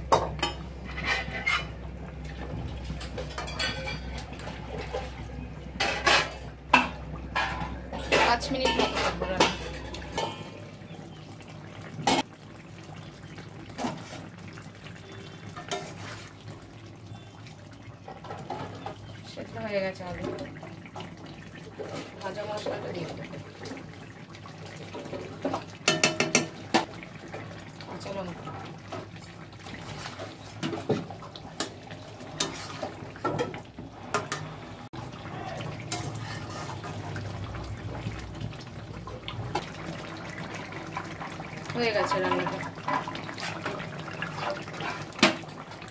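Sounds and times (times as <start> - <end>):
curry simmering: 0.0 - 45.9
metal spatula scraping pan: 0.8 - 1.8, 7.4 - 10.4, 35.9 - 36.9.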